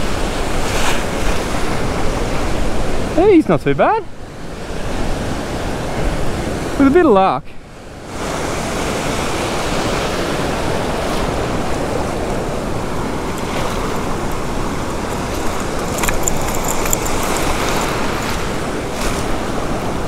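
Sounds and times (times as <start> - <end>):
surf washing over sand: 0.0 - 20.0
short clicks and rattles: 13.4 - 18.4.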